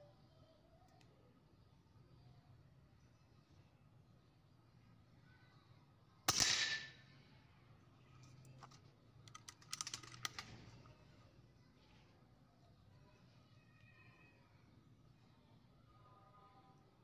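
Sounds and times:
air rifle shot: 6.3s - 7.0s
light clicks of rifle handling: 8.2s - 11.0s.

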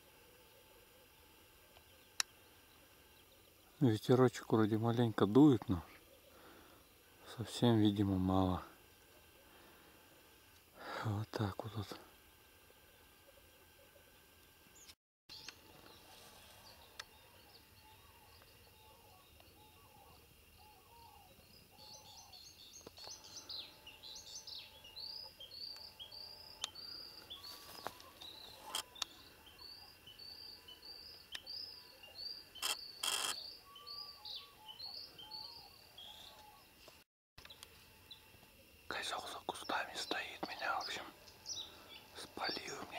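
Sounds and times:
songbird chirping: 0.2s - 42.9s
lower bird calls: 14.8s - 36.8s, 38.9s - 42.9s
sharp clicks: 32.6s - 33.4s.

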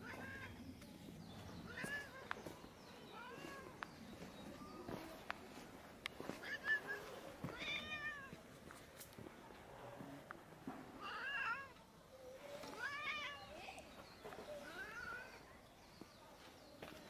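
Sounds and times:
cat meowing: 6.4s - 8.3s.

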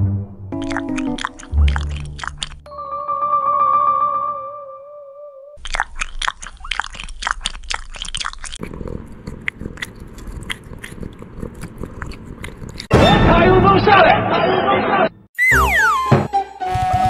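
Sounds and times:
cat crunching dry treats: 0.6s - 2.6s, 5.6s - 12.9s.

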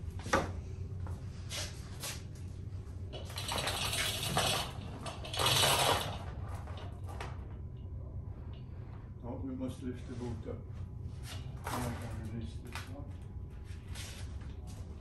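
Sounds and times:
steel chain rattling and clinking: 3.3s - 6.2s.

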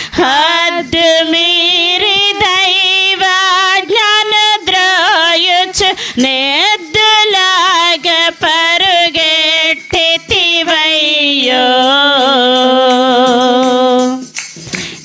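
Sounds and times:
women singing into microphones: 0.0s - 14.9s
hand claps: 14.0s - 15.0s.

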